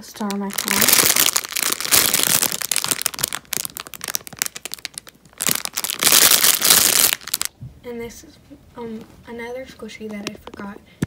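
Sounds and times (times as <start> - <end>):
plastic bag crinkling: 0.0 - 7.5.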